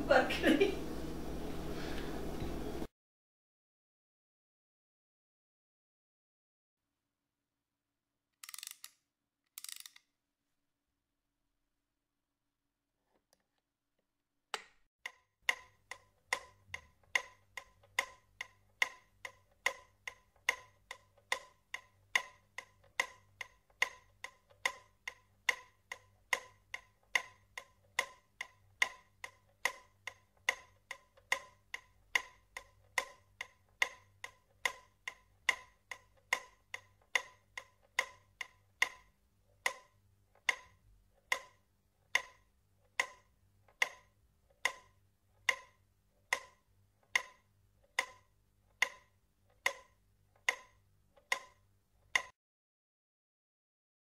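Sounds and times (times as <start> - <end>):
clock-like ticking: 15.0 - 52.4.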